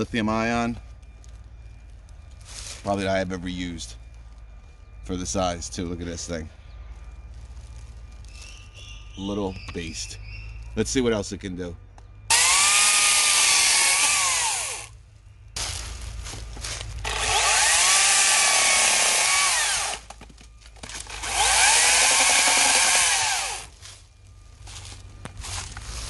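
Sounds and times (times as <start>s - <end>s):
electric chainsaw cutting branches: 12.3s - 14.9s, 17.0s - 20.2s, 20.8s - 24.0s.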